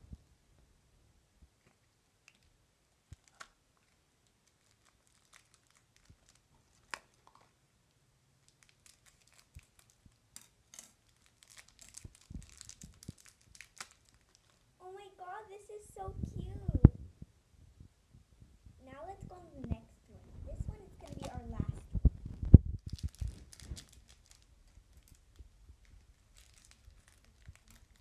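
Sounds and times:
wrapper crinkling: 0:03.2 - 0:07.5, 0:08.4 - 0:14.8, 0:20.8 - 0:21.5, 0:22.8 - 0:28.0.

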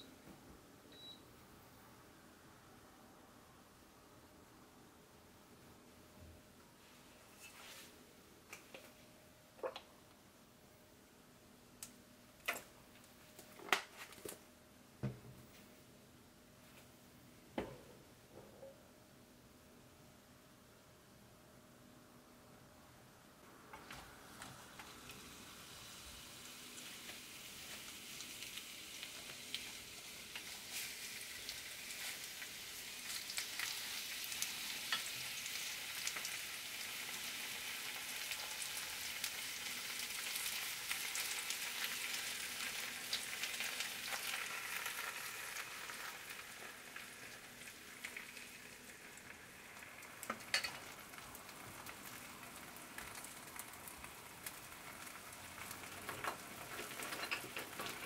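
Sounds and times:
batter sizzling in hot oil: 0:24.2 - 0:58.0.

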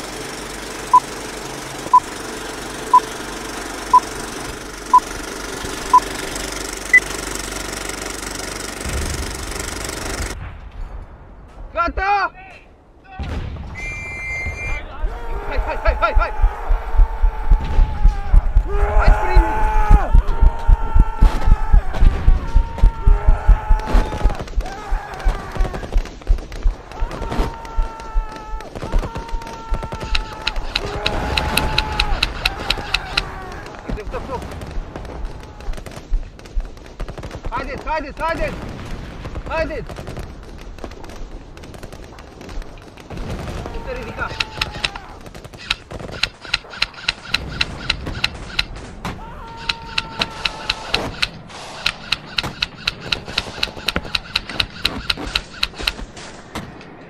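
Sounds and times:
film projector clattering: 0:00.0 - 0:10.4, 0:30.1 - 0:33.3, 0:44.3 - 0:45.0, 0:45.6 - 0:48.7, 0:49.6 - 0:56.0.

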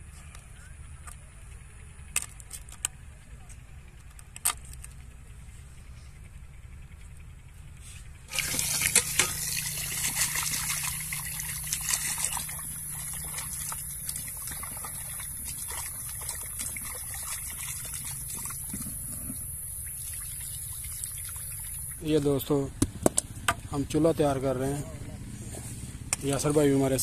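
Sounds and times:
water splashing in metal pot: 0:08.3 - 0:18.8, 0:19.7 - 0:22.0.

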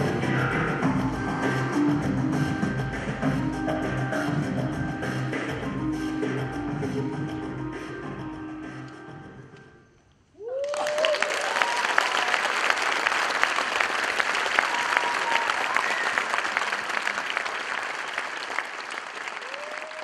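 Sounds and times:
music: 0:00.0 - 0:10.3
whoops and cheers: 0:10.4 - 0:12.6, 0:14.5 - 0:16.5, 0:19.4 - 0:20.0
audience applause: 0:10.5 - 0:20.0.

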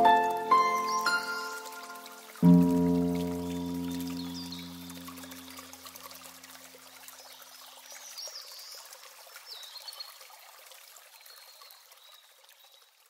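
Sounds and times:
bird chirping: 0:00.0 - 0:02.3
low harp notes: 0:00.0 - 0:05.6
stream babbling: 0:00.0 - 0:09.2.

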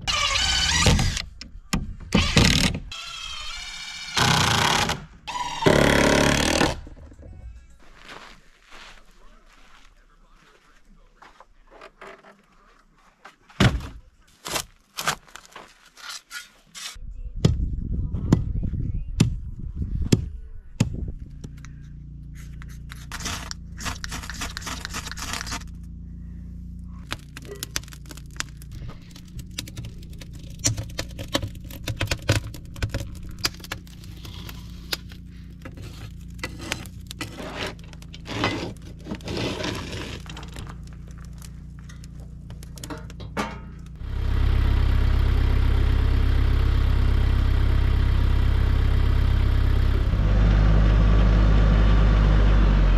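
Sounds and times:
wood scraping and snapping: 0:13.8 - 0:17.0, 0:22.7 - 0:25.8, 0:27.0 - 0:44.0
steady low hum: 0:17.0 - 0:52.9
wood fire crackling: 0:27.0 - 0:43.1.

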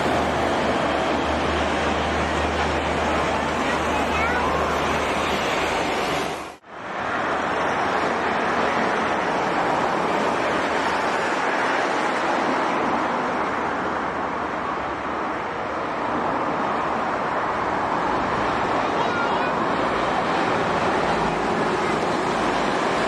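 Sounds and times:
highway traffic: 0:00.0 - 0:23.0.

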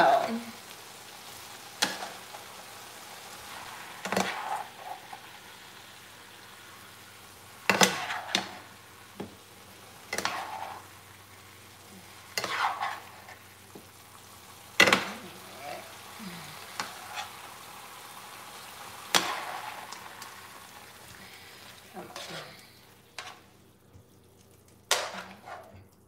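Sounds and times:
meat sizzling in a frying pan: 0:00.0 - 0:25.8
metal utensil scraping a pan: 0:04.0 - 0:05.3, 0:07.6 - 0:08.7, 0:10.0 - 0:11.0, 0:12.0 - 0:13.4, 0:16.6 - 0:17.6, 0:18.6 - 0:20.4, 0:21.2 - 0:23.5, 0:24.9 - 0:25.9.

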